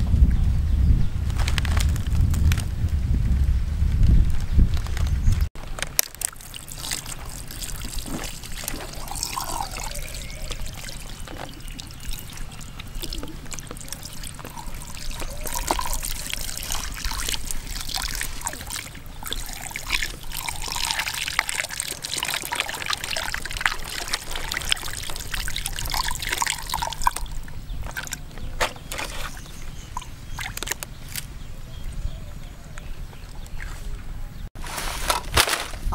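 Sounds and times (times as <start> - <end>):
small wet clicks: 5.8 - 31.3
water trickling and splattering: 6.0 - 30.8.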